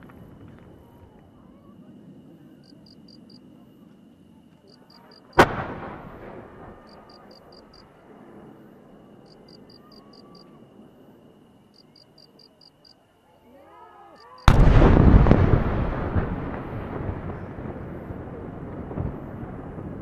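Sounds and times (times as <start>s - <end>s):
crickets chirping: 0.0s - 20.0s
firework bang echoing: 5.4s - 7.7s, 14.5s - 20.0s.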